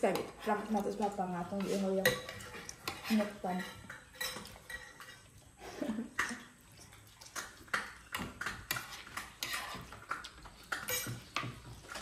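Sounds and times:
cutlery clinking on plates: 1.6 - 5.3, 7.4 - 12.0.

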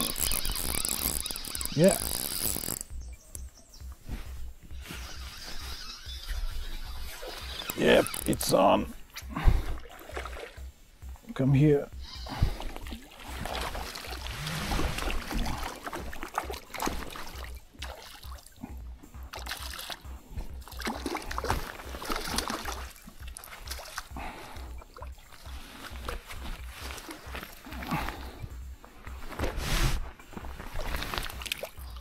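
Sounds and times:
fish splashing in water: 12.2 - 18.6, 19.3 - 28.3.

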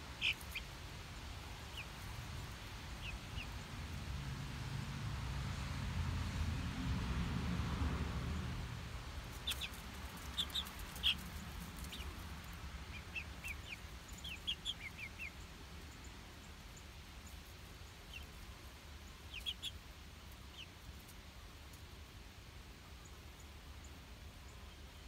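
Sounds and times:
young chickens chirping: 0.0 - 4.2, 9.2 - 25.0.

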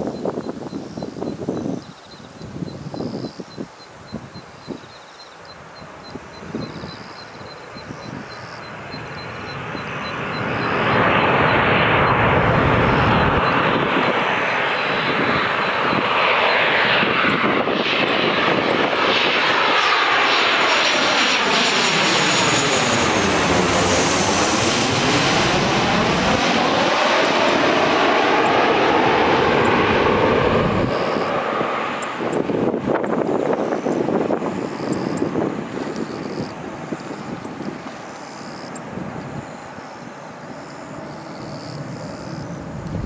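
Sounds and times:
jet engines passing overhead: 0.0 - 43.0
high fan whine: 23.2 - 43.0.

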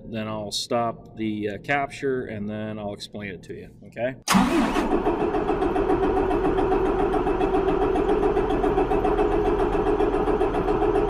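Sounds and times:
diesel engine cranking: 4.3 - 11.0.

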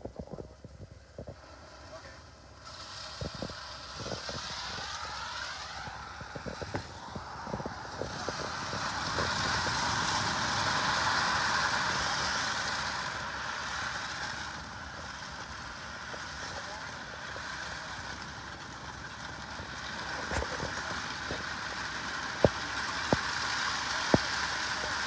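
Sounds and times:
water gushing into a channel: 2.7 - 25.0.

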